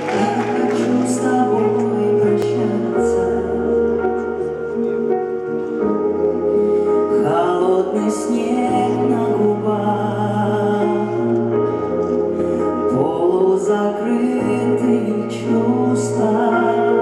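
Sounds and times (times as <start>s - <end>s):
woman singing: 0.0s - 4.4s
keyboard chords: 0.0s - 17.0s.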